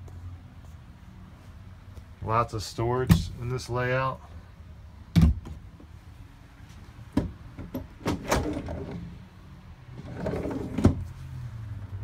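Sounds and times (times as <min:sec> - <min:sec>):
drawer sliding rustle: 0:08.0 - 0:09.1, 0:10.0 - 0:11.1.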